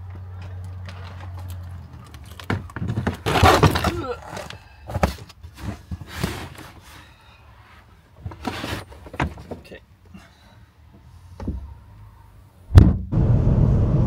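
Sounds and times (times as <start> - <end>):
sharp loud thump: 12.7 - 13.8.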